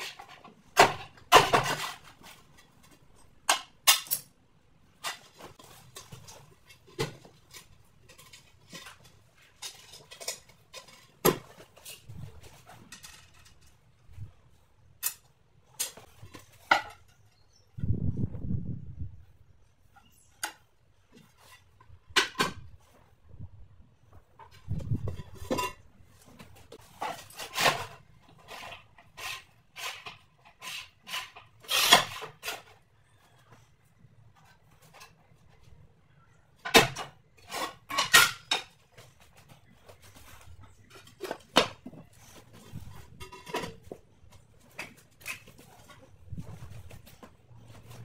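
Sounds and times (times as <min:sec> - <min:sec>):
ceramic tiles clinking and scraping: 0:00.0 - 0:11.2.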